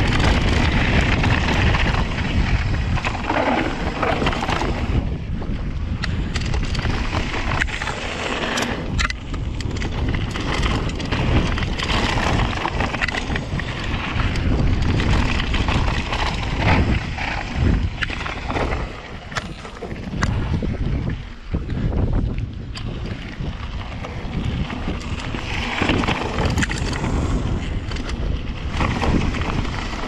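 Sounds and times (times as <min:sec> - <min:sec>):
bike rattling over bumps: 0:00.0 - 0:30.0
bike tyre noise on ground: 0:00.0 - 0:30.0
wind buffeting microphone: 0:00.0 - 0:30.0.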